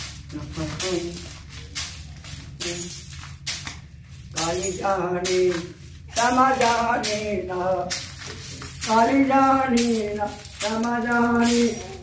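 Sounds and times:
jingling clinking strokes: 0.0s - 12.0s
person singing devotional song: 4.4s - 8.2s, 8.8s - 12.0s.

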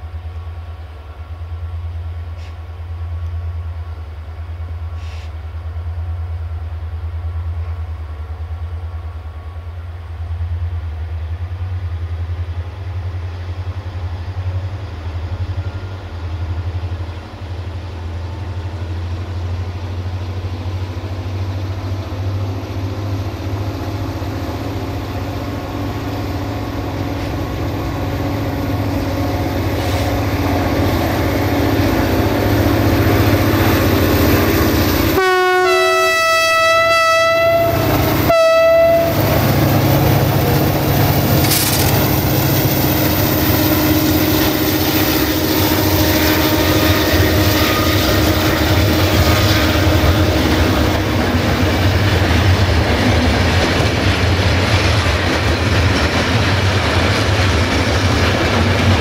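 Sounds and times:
train engine passing: 0.0s - 59.0s
multi-tone train horn blast: 34.5s - 39.5s, 43.4s - 51.4s
wheels clattering over rail joints: 40.4s - 42.2s.

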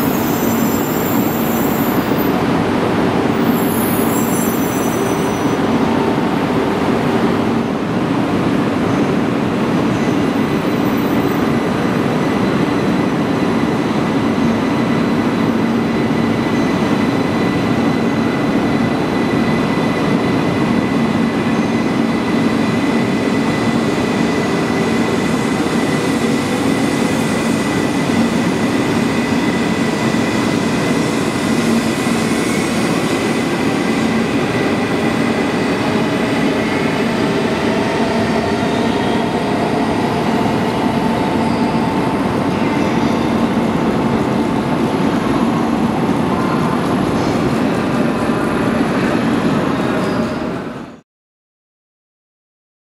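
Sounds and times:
electric train drive hum and whine: 11.6s - 50.9s.

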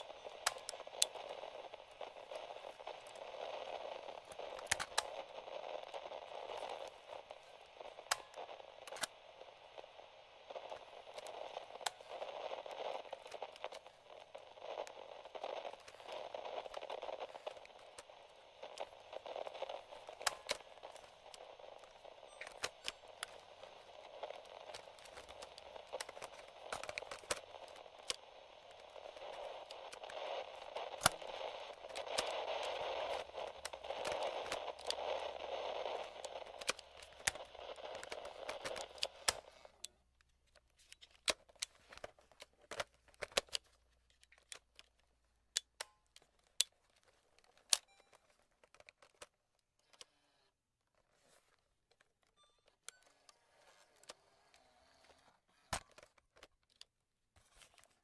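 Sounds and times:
radio static hiss: 0.0s - 39.9s
crackles and clicks: 0.0s - 58.0s.

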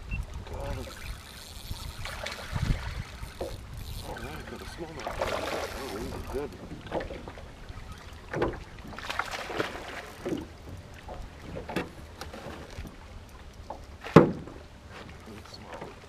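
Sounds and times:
wind on microphone: 0.0s - 7.9s
small waves slapping boat hull: 0.3s - 16.0s.

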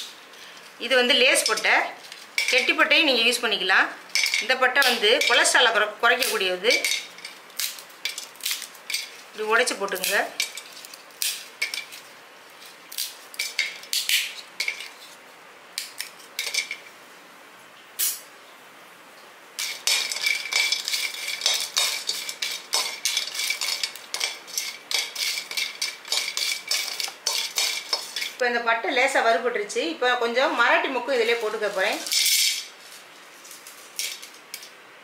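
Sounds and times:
pieces clattering into metal pan: 1.1s - 3.0s, 4.1s - 12.0s, 12.9s - 15.0s, 15.8s - 16.9s, 19.6s - 28.4s, 31.2s - 34.7s
metal spatula scraping pan: 19.6s - 28.4s.

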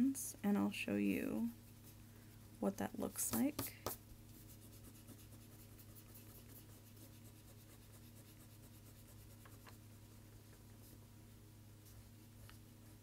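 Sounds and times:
low steady hum: 0.0s - 13.0s
pencil rubbing on paper: 3.3s - 10.2s.

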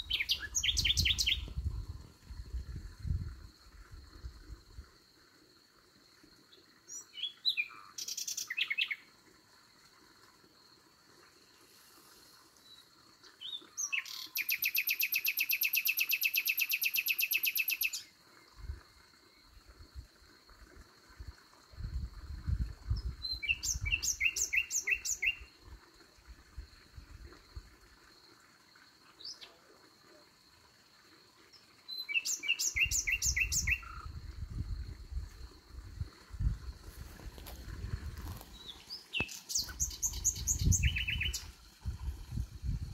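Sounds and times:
nightingale singing: 0.0s - 2.0s, 6.9s - 9.1s, 13.4s - 18.1s, 23.0s - 25.5s, 31.9s - 34.2s, 38.2s - 41.6s.

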